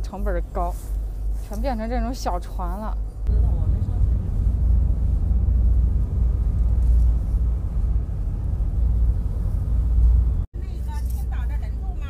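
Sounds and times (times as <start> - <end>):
ferry engine rumble: 0.0 - 12.0.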